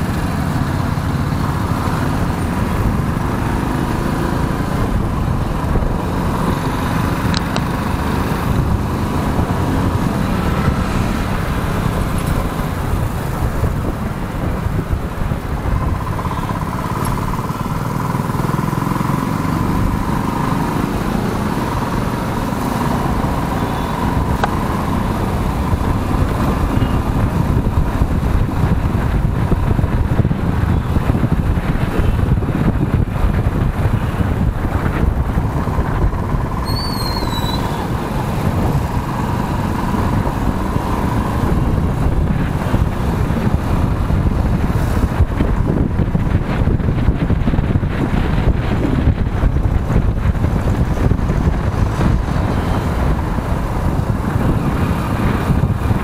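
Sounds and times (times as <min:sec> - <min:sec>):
motorcycle engine: 0:00.0 - 0:56.0
road noise: 0:00.0 - 0:56.0
heavy low rumble: 0:21.1 - 0:56.0.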